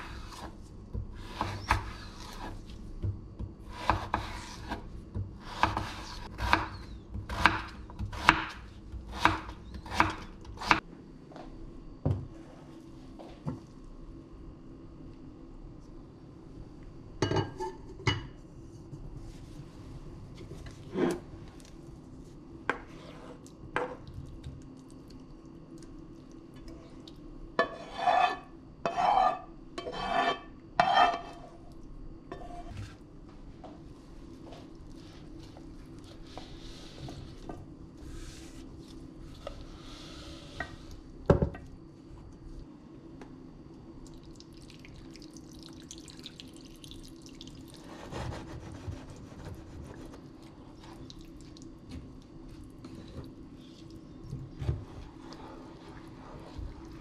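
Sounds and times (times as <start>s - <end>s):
low steady hum: 0.0s - 57.0s
spatula scraping frying pan: 27.6s - 31.4s.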